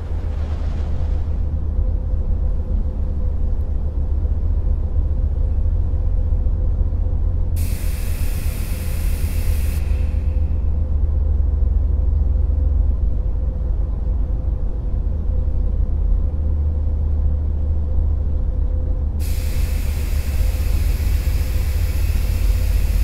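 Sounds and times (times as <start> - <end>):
constant hum: 0.0 - 23.0
deep steady rumble: 0.0 - 23.0
hiss: 7.6 - 10.7, 19.2 - 23.0.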